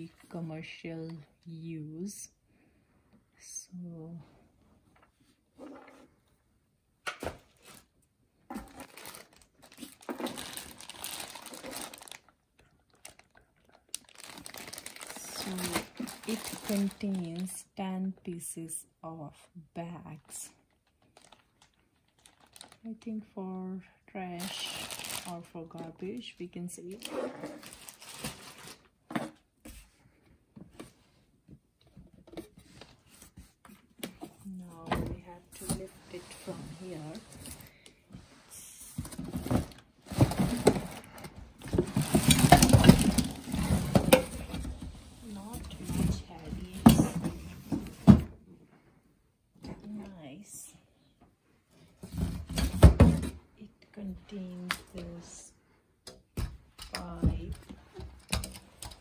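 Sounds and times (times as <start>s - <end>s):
cardboard and plastic rustling: 7.2s - 17.7s, 20.2s - 23.0s, 24.4s - 48.4s, 51.7s - 53.4s
plastic packaging crinkling: 8.5s - 17.6s, 20.6s - 22.9s, 24.4s - 25.5s, 26.9s - 28.9s.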